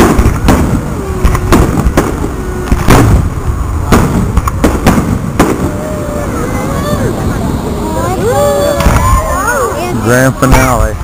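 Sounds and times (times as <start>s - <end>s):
firework shells bursting: 0.0s - 6.3s
constant low rumble: 0.0s - 11.0s.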